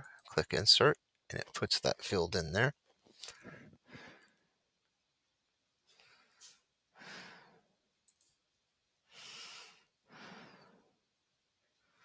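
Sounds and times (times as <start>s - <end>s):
person breathing: 3.2s - 4.5s, 5.9s - 7.8s, 9.0s - 11.0s
faint clicks: 8.0s - 8.4s.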